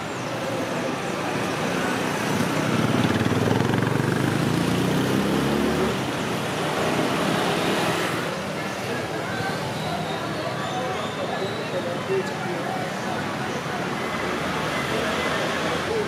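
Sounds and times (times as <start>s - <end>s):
street traffic: 0.0s - 16.0s
vehicle engine passing by: 2.2s - 8.3s.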